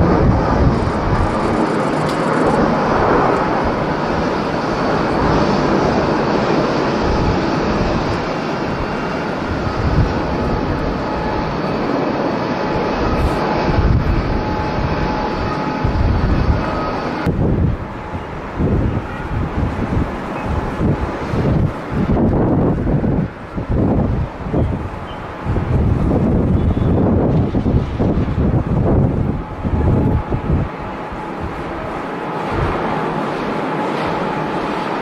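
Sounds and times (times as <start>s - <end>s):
jet engines roaring: 0.0s - 35.0s
wind gusts on microphone: 0.0s - 35.0s.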